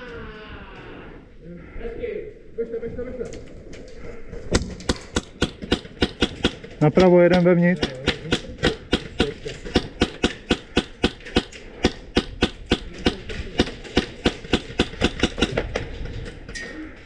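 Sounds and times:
airsoft rifle shots: 4.5s - 15.8s.

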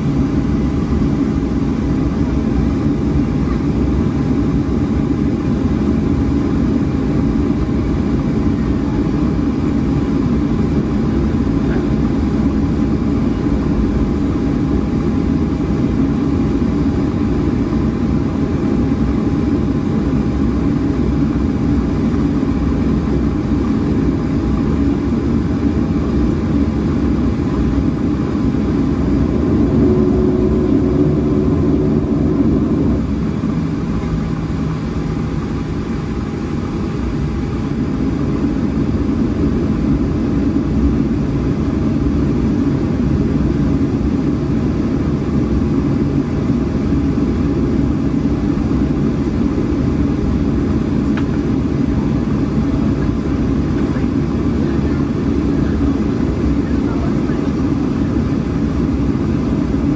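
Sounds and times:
jet engines idling rumble: 0.0s - 59.9s
thin steady hum: 22.9s - 41.1s
second hum: 28.6s - 35.9s.

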